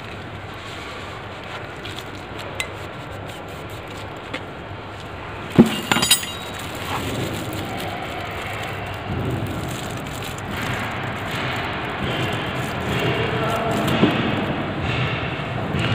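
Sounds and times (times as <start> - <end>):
metal tools clinking: 5.5 - 8.9.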